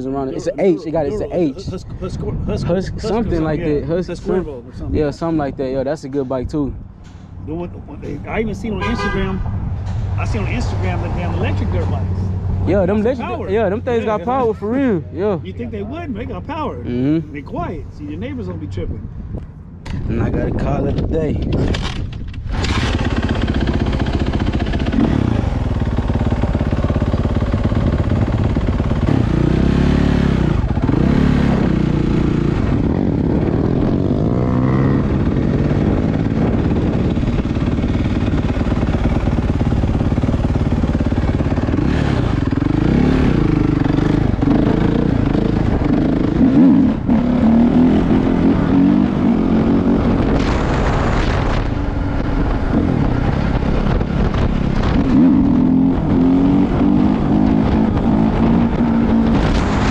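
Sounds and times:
dirt bike engine revving: 22.5s - 59.9s.

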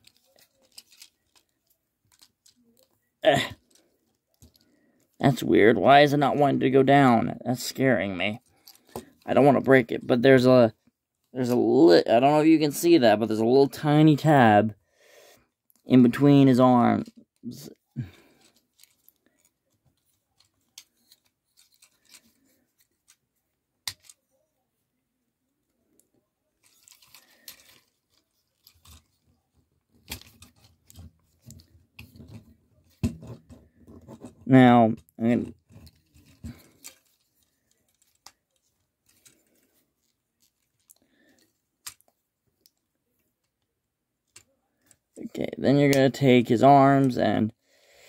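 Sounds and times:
plastic toy parts clicking: 0.0s - 4.7s, 18.4s - 23.2s, 23.8s - 24.2s, 26.0s - 29.2s, 29.9s - 33.5s, 35.0s - 43.6s.

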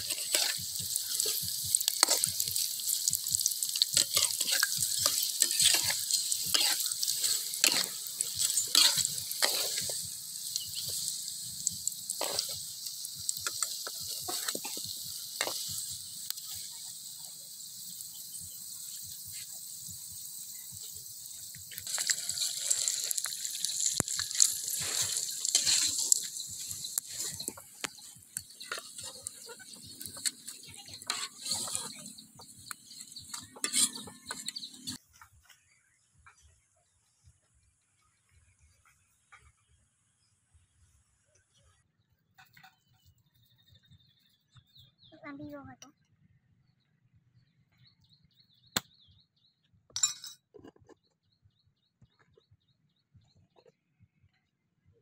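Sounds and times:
metal ladle scraping a pan: 0.0s - 16.8s, 21.7s - 35.0s
hot oil sizzling in a wok: 0.0s - 35.0s
faint high-pitched chirping: 0.0s - 55.0s.

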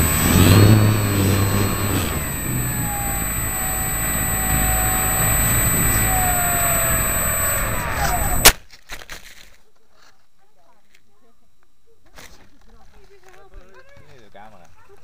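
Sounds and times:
faint wavering motor whine: 0.0s - 8.6s.

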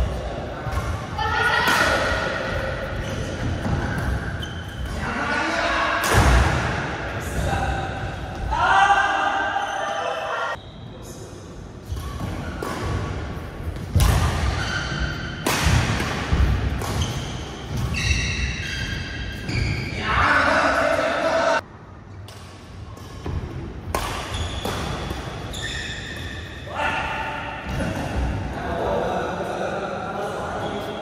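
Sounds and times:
players' voices: 0.0s - 11.5s, 19.8s - 21.6s, 26.7s - 31.0s
shoes squeaking on court: 2.9s - 5.0s, 16.8s - 20.0s, 24.2s - 26.6s
racket striking shuttlecock: 22.3s - 25.4s.

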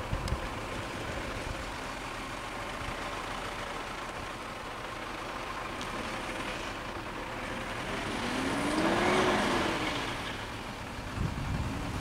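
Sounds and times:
vehicle passing by: 7.4s - 12.0s.

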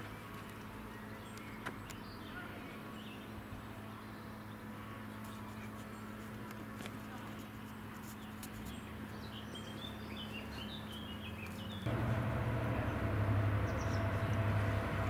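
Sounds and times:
small birds chirping: 0.0s - 15.0s
diesel locomotive engine running: 11.8s - 15.0s
low steady hum: 11.8s - 15.0s.

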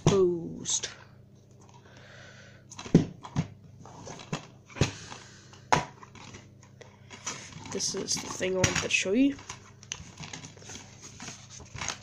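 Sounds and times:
plastic cases clacking: 2.7s - 12.0s.

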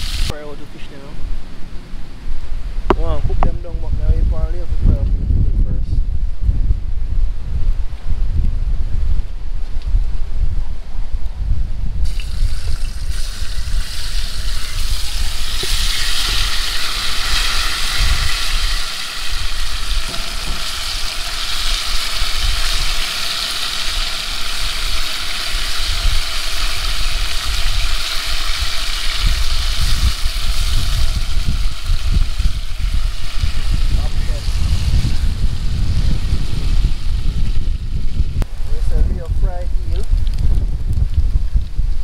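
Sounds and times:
food sizzling in oil: 0.0s - 0.3s, 12.0s - 38.4s
wind on microphone: 0.0s - 42.0s.

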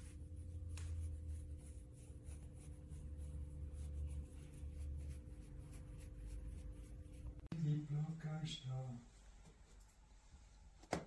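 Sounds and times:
fingers scratching dog fur: 0.0s - 7.5s
steady hum: 0.0s - 10.6s.

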